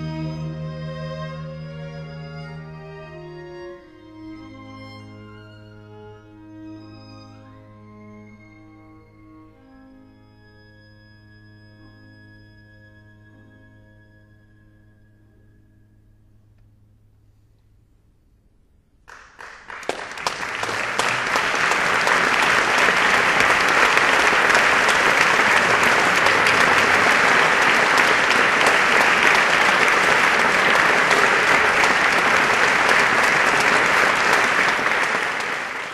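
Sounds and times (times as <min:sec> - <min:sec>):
audience applause: 0:19.1 - 0:35.9.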